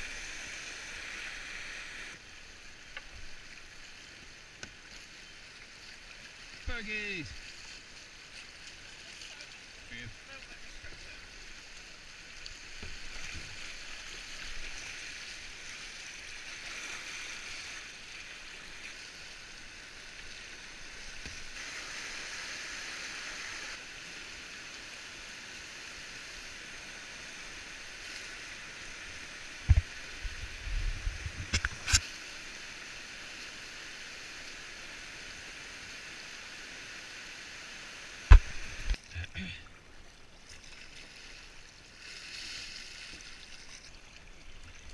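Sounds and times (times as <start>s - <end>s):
whitewater rushing over rocks: 31.9s - 39.5s.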